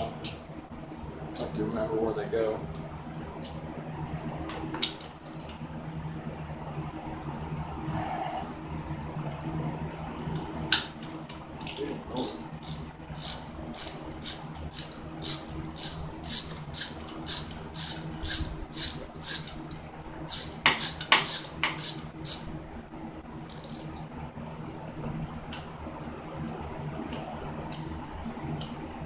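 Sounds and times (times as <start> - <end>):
ratchet wrench clicking: 11.6 - 22.5, 23.5 - 24.0.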